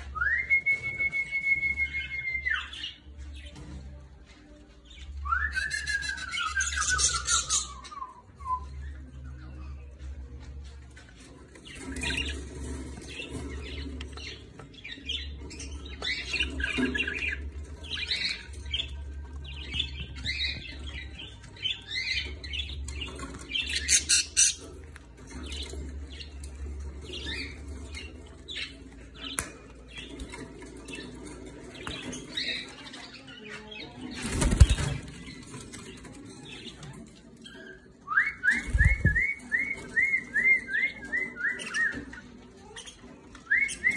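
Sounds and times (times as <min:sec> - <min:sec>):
budgerigars chattering and warbling: 0:11.6 - 0:37.9.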